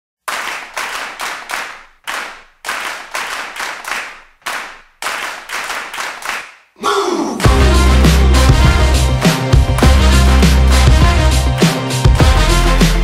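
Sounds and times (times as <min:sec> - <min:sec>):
hands clapping in unison: 0:00.2 - 0:06.7, 0:09.1 - 0:13.0.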